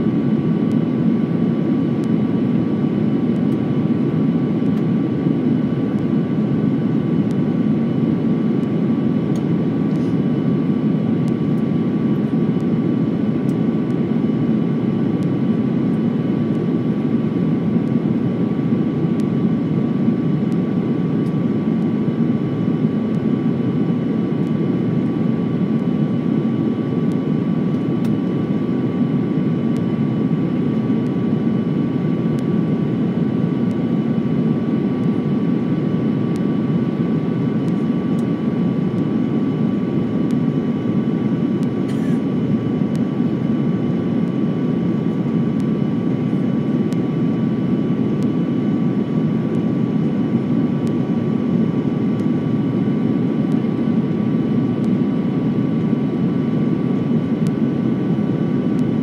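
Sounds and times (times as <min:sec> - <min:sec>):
jet engines and airflow rushing: 0:00.0 - 0:59.0
thin steady whine: 0:00.0 - 0:59.0.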